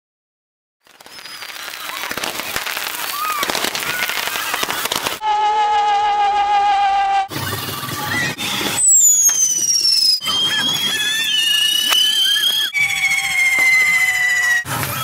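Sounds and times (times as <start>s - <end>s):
hiss of sparks: 0.8s - 5.2s
shrill firework whistles: 0.8s - 5.3s, 8.0s - 15.0s.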